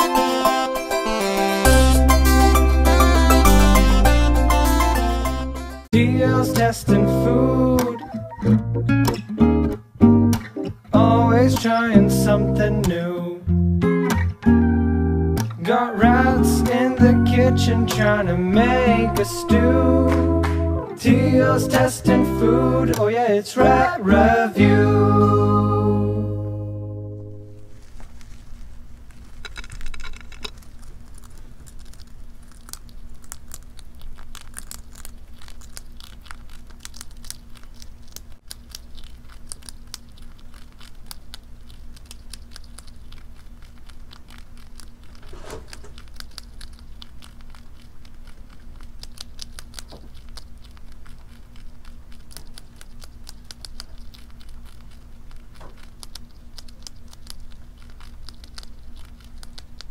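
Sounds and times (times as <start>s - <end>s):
rat chewing crunchy food: 27.4s - 59.9s.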